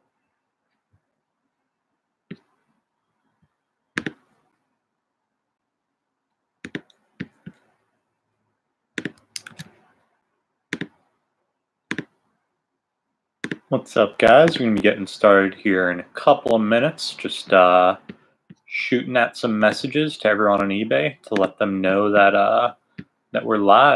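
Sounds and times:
computer mouse clicks: 4.0s - 4.4s, 6.6s - 7.7s, 9.0s - 9.8s, 10.7s - 11.1s, 11.9s - 12.2s.

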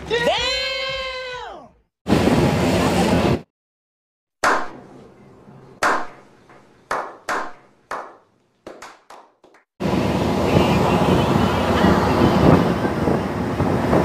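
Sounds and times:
wind and water noise: 2.1s - 3.5s, 9.8s - 14.0s
hand claps with echo: 5.8s - 6.2s, 6.9s - 9.7s.

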